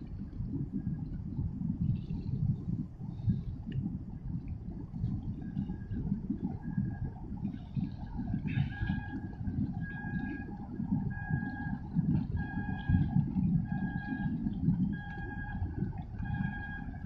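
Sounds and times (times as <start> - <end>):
low rumble: 0.0 - 17.0
pulsing pitched tone: 5.5 - 17.0.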